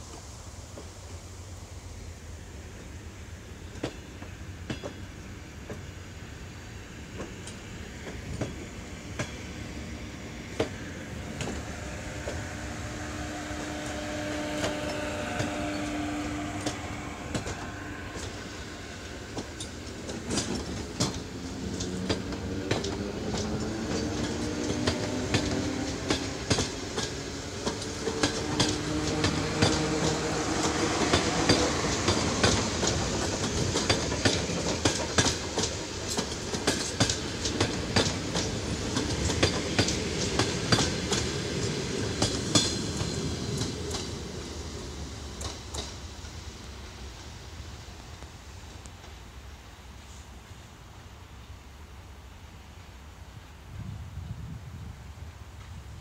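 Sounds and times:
electric train motors whining: 0:10.5 - 0:45.9
wheels clacking over rail joints: 0:13.5 - 0:46.4.

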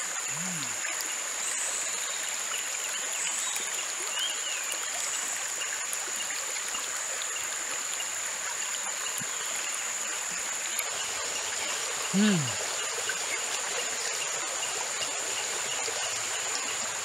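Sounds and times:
high insect drone: 0:00.0 - 0:01.4, 0:07.0 - 0:17.0
stream running over pebbles: 0:00.0 - 0:17.0.

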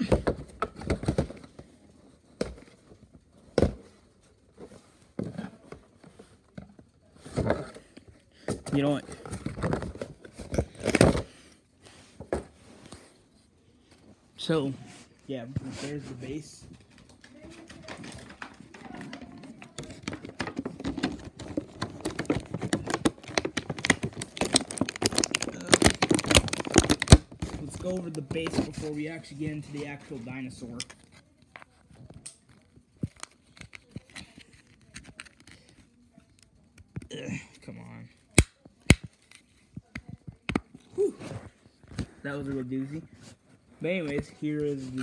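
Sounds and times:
cardboard and plastic knocks and rustles: 0:00.0 - 0:11.4, 0:16.6 - 0:29.7
cardboard and plastic packaging crinkling: 0:16.0 - 0:35.7.

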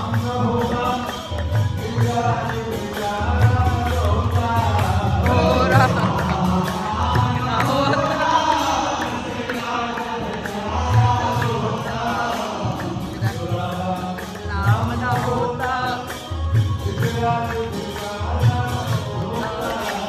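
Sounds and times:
group singing devotional song: 0:00.0 - 0:20.0
low drum beat: 0:03.5 - 0:08.8.

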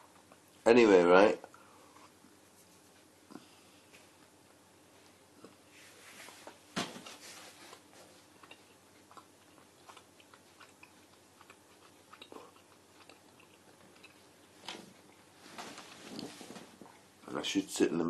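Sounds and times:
person chewing food: 0:07.3 - 0:15.4.

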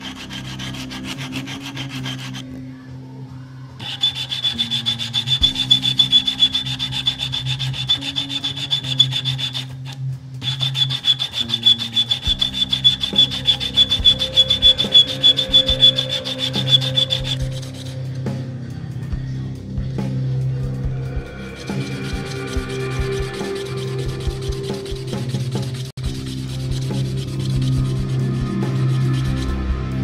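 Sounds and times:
sandpaper rasping on wood: 0:00.0 - 0:02.4, 0:03.8 - 0:18.1, 0:21.4 - 0:29.6.

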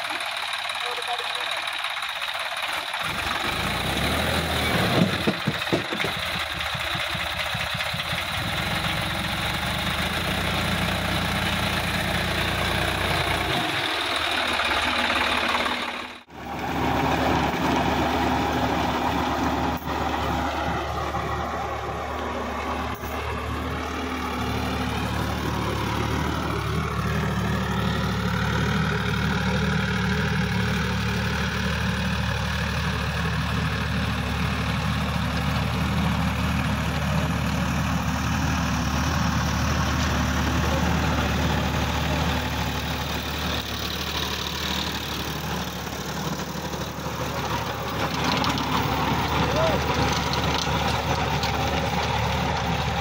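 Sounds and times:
tractor diesel engine running: 0:00.0 - 0:53.0
rotary tiller churning soil: 0:38.9 - 0:53.0.

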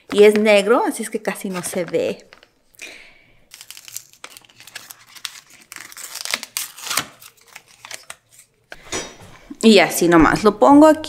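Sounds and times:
plastic packaging crinkling: 0:01.2 - 0:02.7, 0:03.4 - 0:08.6.

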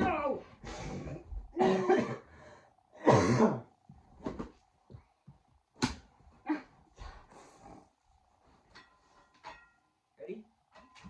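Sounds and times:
person coughing breathily: 0:01.5 - 0:02.4, 0:03.0 - 0:03.7.

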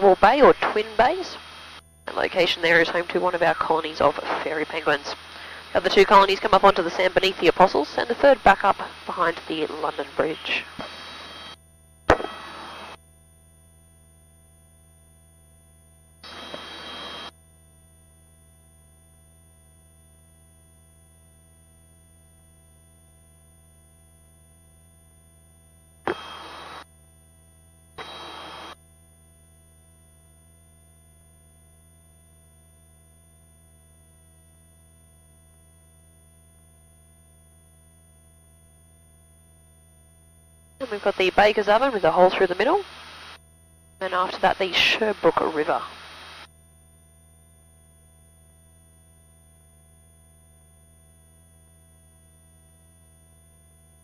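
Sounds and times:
intercom low hum: 0:00.0 - 0:13.0, 0:16.2 - 0:17.3, 0:26.1 - 0:26.8, 0:28.0 - 0:28.8, 0:40.8 - 0:43.4, 0:44.0 - 0:46.5
headset microphone click: 0:12.1 - 0:12.4.

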